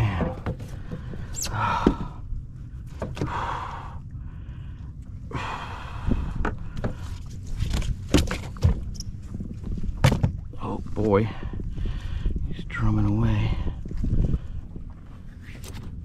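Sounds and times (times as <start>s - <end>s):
knocks and thumps on a kayak: 0.0s - 2.2s, 2.9s - 3.6s, 6.4s - 10.6s
breathy exhalations: 0.2s - 2.3s, 3.2s - 7.2s.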